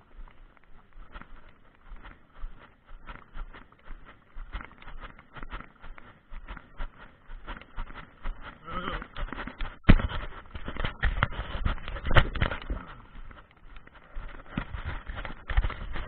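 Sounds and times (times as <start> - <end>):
horse hoofbeats: 0.0 - 16.0.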